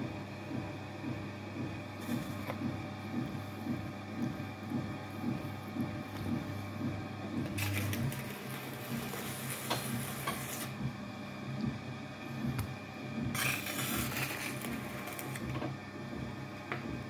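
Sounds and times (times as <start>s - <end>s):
potter's wheel motor humming: 0.0s - 17.0s.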